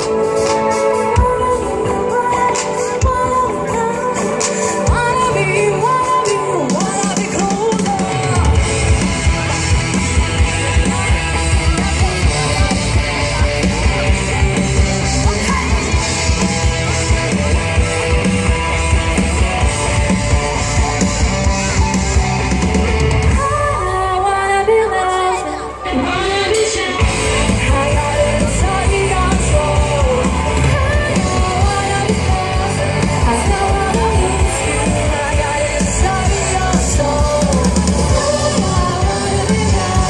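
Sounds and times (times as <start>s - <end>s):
person singing into a microphone: 0.0s - 8.9s, 23.3s - 40.0s
electric guitar: 0.0s - 40.0s.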